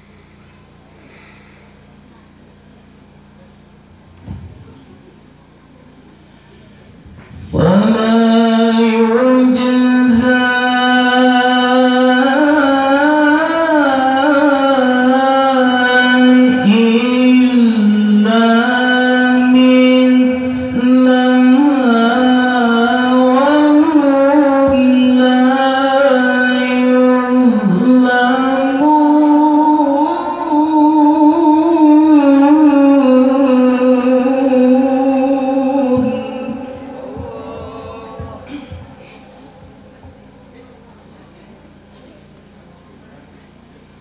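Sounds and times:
man reciting melodically into microphone: 0:06.6 - 0:41.5.

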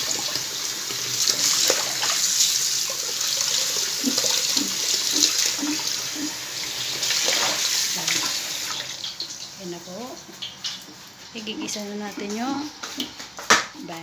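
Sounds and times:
tap water splashing into bowl: 0:01.2 - 0:02.4, 0:07.0 - 0:09.3.

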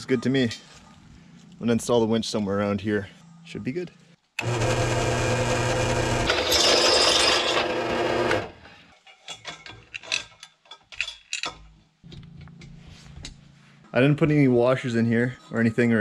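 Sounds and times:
drill press boring through steel: 0:04.4 - 0:08.6.

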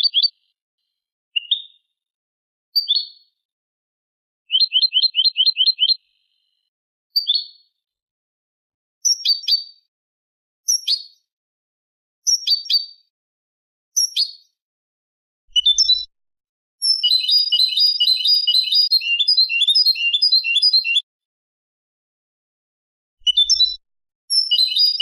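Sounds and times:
fast bird twittering: 0:04.5 - 0:06.0, 0:16.8 - 0:21.0, 0:24.3 - 0:25.0
bird call notes: 0:17.0 - 0:21.0.

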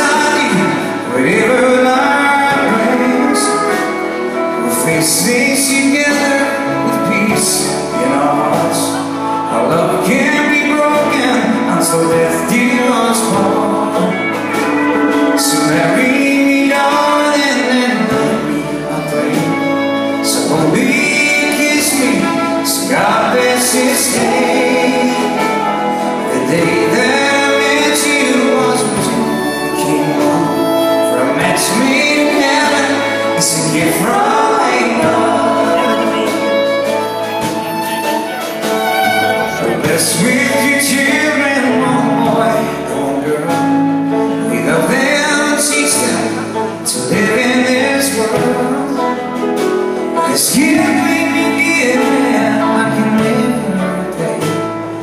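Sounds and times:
drums: 0:00.0 - 0:55.0
electric guitar: 0:00.0 - 0:55.0
live country band playing: 0:00.0 - 0:55.0
person singing: 0:00.0 - 0:55.0.

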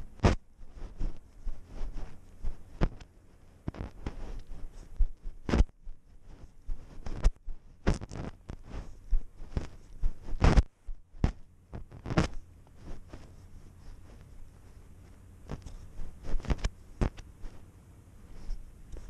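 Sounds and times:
fur brushing microphone: 0:00.0 - 0:19.0.

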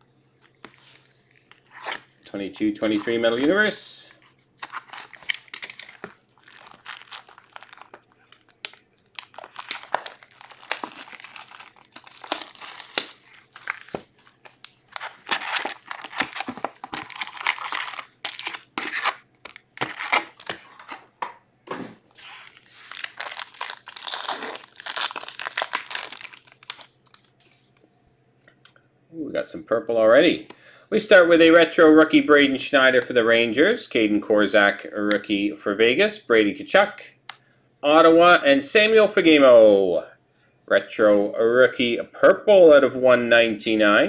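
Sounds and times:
foil pack torn open: 0:04.6 - 0:20.6, 0:22.4 - 0:27.3
wrapping crinkling and tearing: 0:04.6 - 0:20.7, 0:22.2 - 0:27.8.

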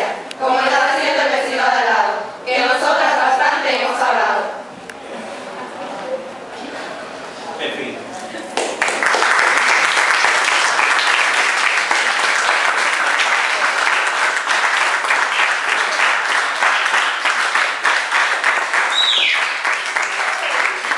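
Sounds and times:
audience applauding: 0:08.6 - 0:20.9.

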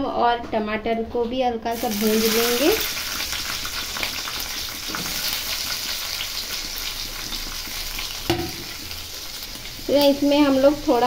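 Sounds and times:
vegetables sizzling in hot oil: 0:01.7 - 0:11.0.

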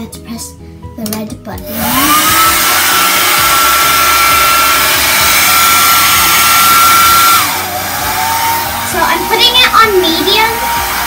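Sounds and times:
blow dryer whine: 0:01.6 - 0:11.0.

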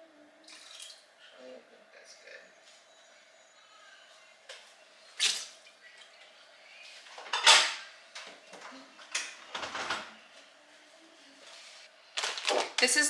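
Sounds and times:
dishes and utensils clattering: 0:07.1 - 0:10.1.

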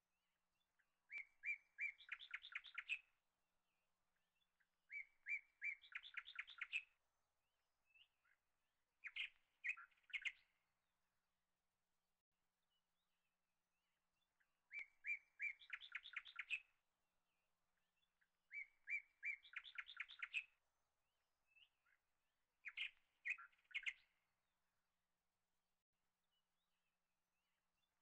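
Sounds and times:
small bird singing: 0:00.6 - 0:03.2, 0:04.1 - 0:07.0, 0:07.8 - 0:08.4, 0:09.0 - 0:10.6, 0:14.2 - 0:20.6, 0:21.5 - 0:24.2.

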